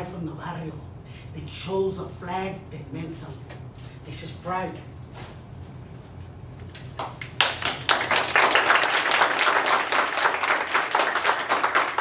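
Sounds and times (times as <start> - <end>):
group clapping: 6.7 - 12.0.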